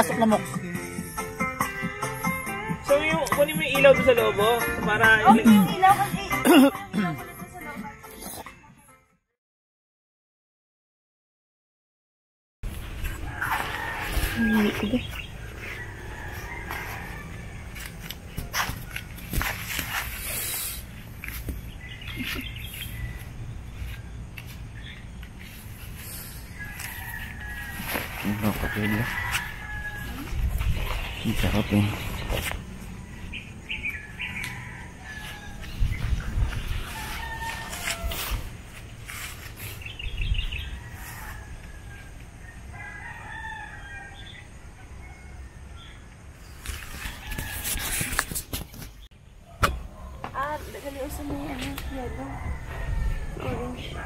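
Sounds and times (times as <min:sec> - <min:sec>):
rooster crowing: 0:13.0 - 0:19.0, 0:26.3 - 0:31.9, 0:33.0 - 0:38.7, 0:40.4 - 0:46.0, 0:46.7 - 0:48.2, 0:51.3 - 0:54.0
tent fabric rustling: 0:25.4 - 0:29.6.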